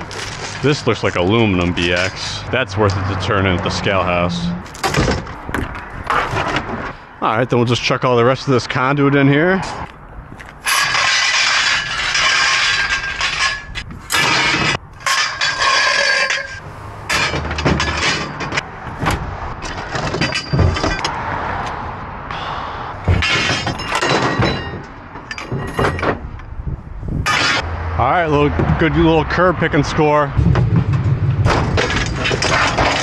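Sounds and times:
metal conduit clattering and ringing: 19.6s - 21.2s, 23.0s - 26.3s.

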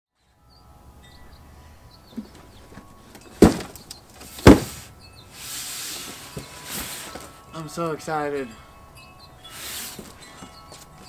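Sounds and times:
hands slapping cardboard box: 3.4s - 3.8s, 4.4s - 4.8s.

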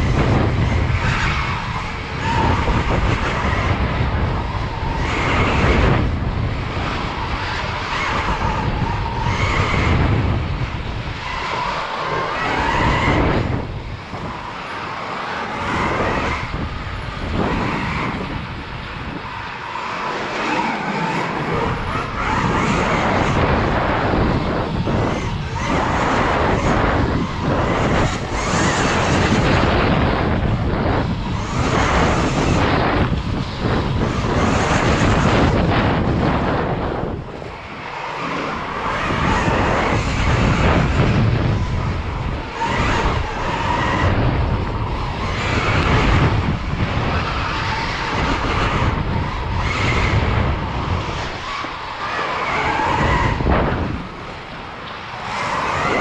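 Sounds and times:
wind and tyre noise: 0.0s - 56.0s.

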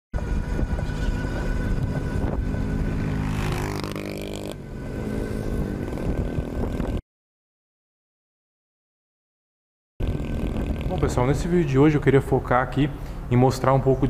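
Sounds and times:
wind rushing over microphone: 0.2s - 4.0s, 4.7s - 7.0s, 10.0s - 11.7s
high motor whine: 0.2s - 7.0s, 10.0s - 11.8s
pitched engine-like tone: 0.2s - 7.0s
bike tyre noise: 10.0s - 11.9s.

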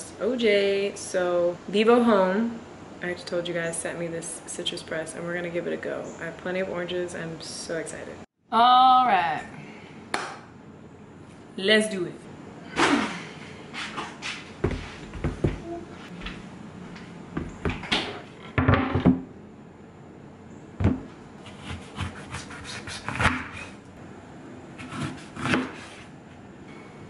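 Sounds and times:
knife cutting on wooden board: 21.4s - 23.8s, 24.8s - 26.0s.

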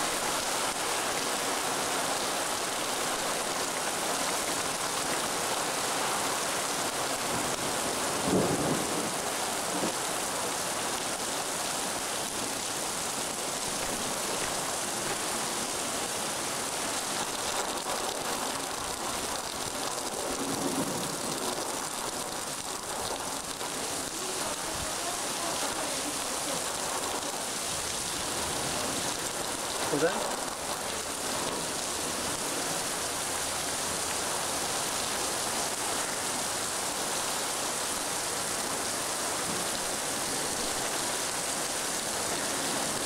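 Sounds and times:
heavy rain falling: 0.0s - 43.0s
low thunder rumbles: 7.3s - 10.3s, 17.2s - 32.7s.

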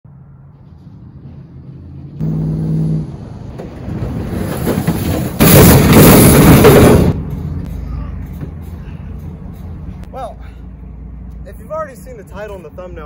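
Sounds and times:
truck engine revving: 1.0s - 7.6s.

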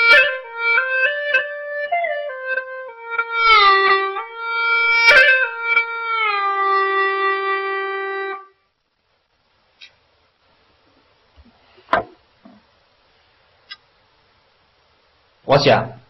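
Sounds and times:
gourd flute melody with pitch slides: 0.0s - 8.5s.

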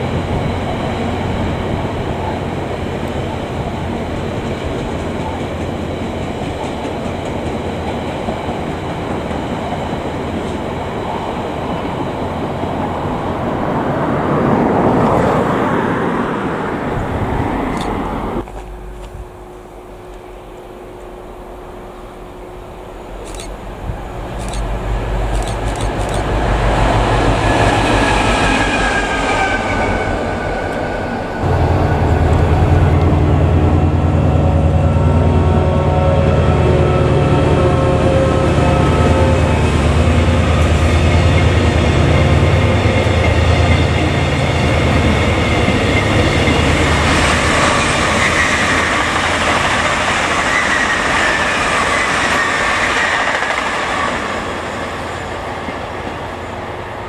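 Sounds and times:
diesel locomotive engine: 0.0s - 57.0s
train coaches rolling by: 0.0s - 57.0s
low engine drone: 31.2s - 47.2s.

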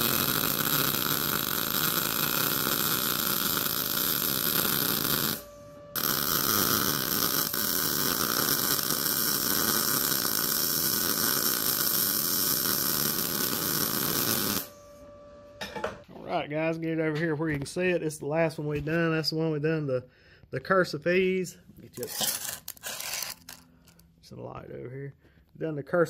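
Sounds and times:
welding arc crackling sizzle: 0.0s - 15.0s, 22.0s - 24.0s.

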